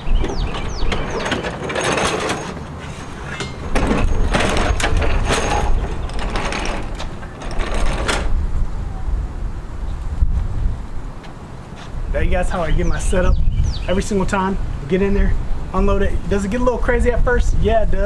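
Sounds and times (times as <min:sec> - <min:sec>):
metal clanks and rattles: 0:00.0 - 0:08.4
mower wheels rumbling on metal ramps: 0:00.0 - 0:08.5.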